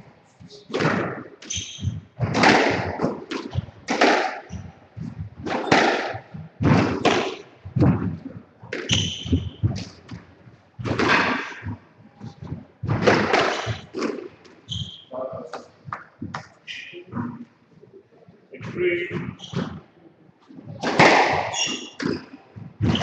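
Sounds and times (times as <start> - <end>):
squash ball hits: 0.7 - 14.9, 20.7 - 23.0
shoes squeaking on wooden floor: 1.4 - 2.4, 8.8 - 16.4, 21.4 - 23.0.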